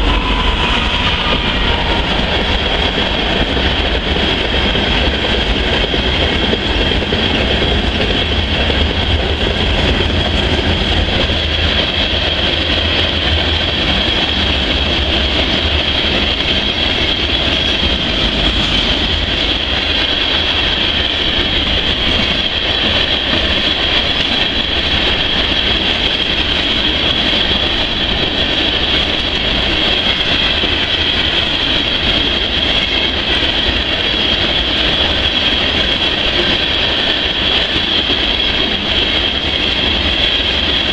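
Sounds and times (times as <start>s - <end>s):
high-pitched whine: 0.0s - 4.1s
freight train wheels rumbling: 0.0s - 40.9s.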